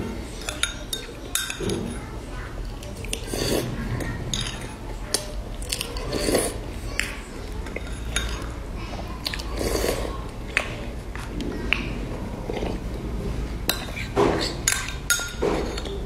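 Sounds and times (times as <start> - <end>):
slurping sips: 3.1 - 3.8, 6.1 - 6.6, 9.6 - 10.2
metal spoon clinking on ceramic bowl: 14.6 - 15.9.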